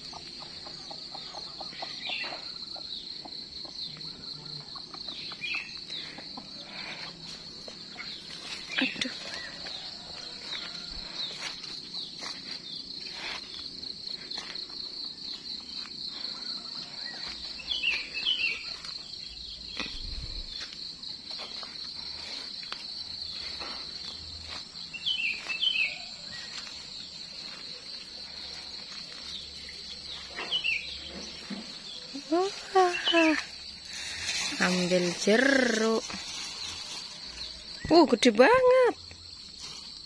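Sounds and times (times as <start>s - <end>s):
high insect trill: 0.0s - 40.0s
footsteps through grass: 7.0s - 16.0s, 17.0s - 37.8s.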